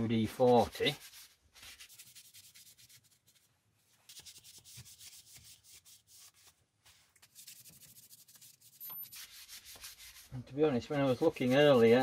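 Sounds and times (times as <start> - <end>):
cloth rubbing on metal: 0.2 - 12.0.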